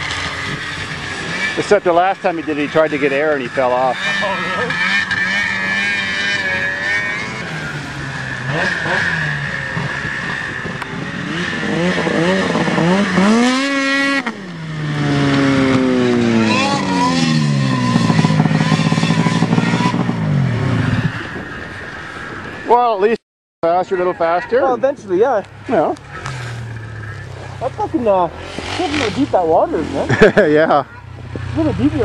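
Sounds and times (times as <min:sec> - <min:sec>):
off-road vehicle engine revving: 0:00.0 - 0:21.9, 0:22.8 - 0:32.0.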